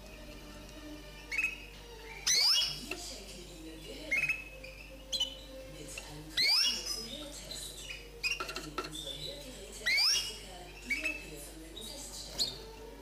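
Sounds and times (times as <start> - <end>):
bird singing trills: 1.1 - 12.8
bird twittering: 1.2 - 3.0, 3.6 - 5.6, 6.3 - 12.8.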